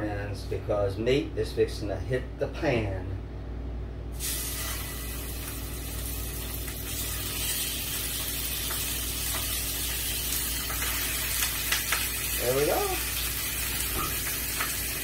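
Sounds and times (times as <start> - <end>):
pork chops sizzling in a skillet: 4.2 - 15.0.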